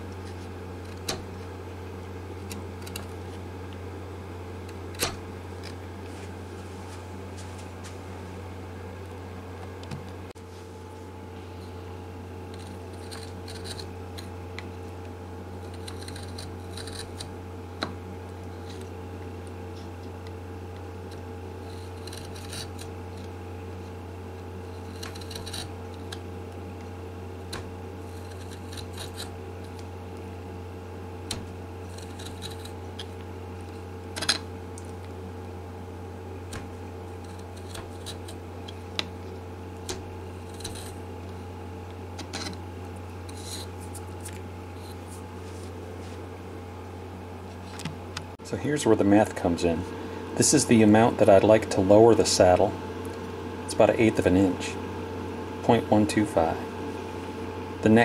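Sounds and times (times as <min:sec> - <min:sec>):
low hum: 0:00.0 - 0:58.0
chisel scraping wood: 0:12.5 - 0:14.3, 0:15.6 - 0:17.3, 0:21.6 - 0:23.0, 0:24.6 - 0:25.7, 0:28.0 - 0:29.8, 0:31.9 - 0:32.8, 0:43.3 - 0:45.2.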